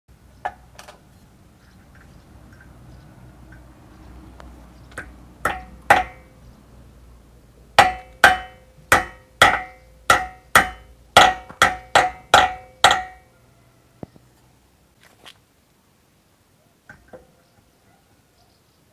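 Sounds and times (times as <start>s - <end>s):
hammer striking steel: 5.0s - 6.3s, 7.8s - 13.3s.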